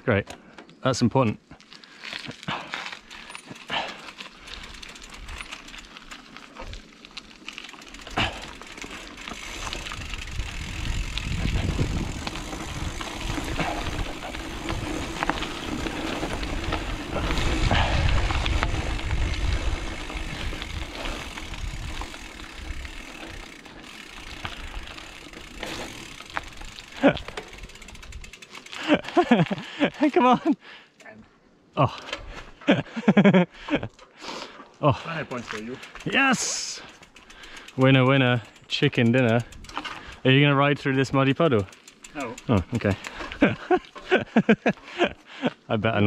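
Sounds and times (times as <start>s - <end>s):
mountain bike tyres rattling on dirt: 0.1s - 30.5s, 31.9s - 46.0s
wind rumbling on microphone: 9.6s - 23.4s.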